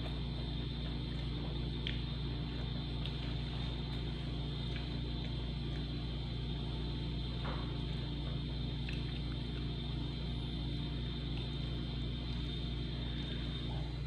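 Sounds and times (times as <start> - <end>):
low mechanical hum: 0.0 - 14.0
faint high whine: 10.0 - 14.0.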